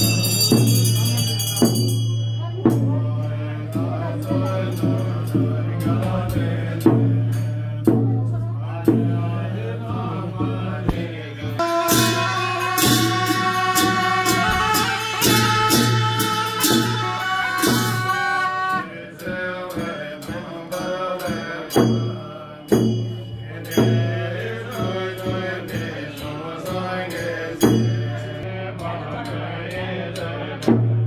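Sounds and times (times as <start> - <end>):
chanting: 0.0 - 31.0
percussion strikes: 0.0 - 31.0
sustained horn notes: 10.9 - 18.9.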